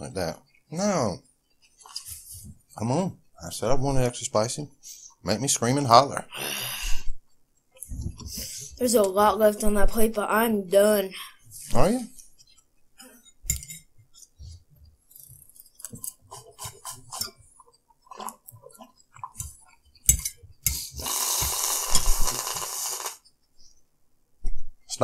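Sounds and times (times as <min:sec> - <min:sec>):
fork scraping ceramic plate: 0:15.9 - 0:21.0
loud slurp: 0:20.7 - 0:23.2.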